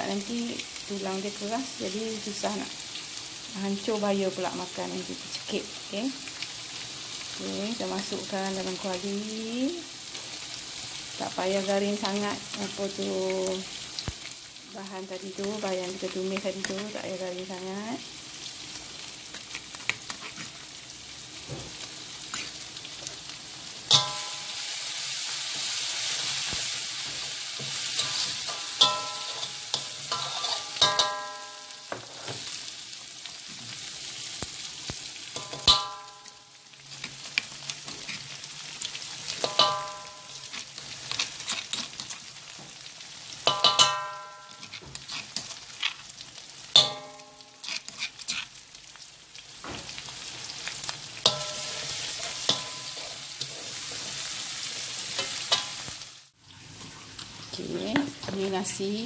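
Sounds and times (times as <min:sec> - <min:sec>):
paste sizzling in hot oil: 0:00.0 - 0:59.0
metal spatula striking wok: 0:23.9 - 0:24.7, 0:27.0 - 0:32.0, 0:35.4 - 0:36.4, 0:39.4 - 0:40.6, 0:43.4 - 0:44.8, 0:46.8 - 0:47.8, 0:51.2 - 0:53.3.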